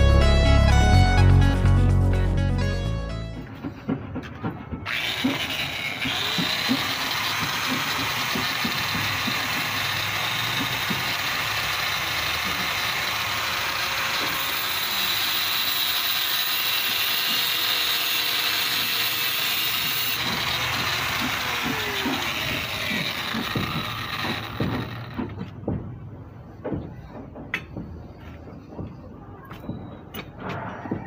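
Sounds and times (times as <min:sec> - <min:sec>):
angle grinder grinding metal: 0:04.8 - 0:25.5.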